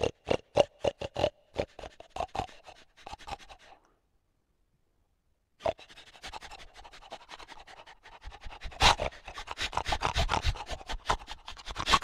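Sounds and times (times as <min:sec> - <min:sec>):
animal snuffling and snorting: 0:00.0 - 0:03.8, 0:05.6 - 0:12.0.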